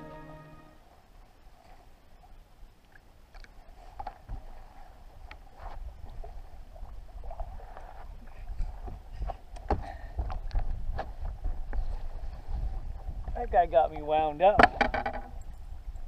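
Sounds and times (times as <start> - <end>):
water lapping against boat hull: 2.9 - 13.4
wind rumble on microphone: 4.0 - 16.0
sharp knocks and clicks: 14.6 - 15.3.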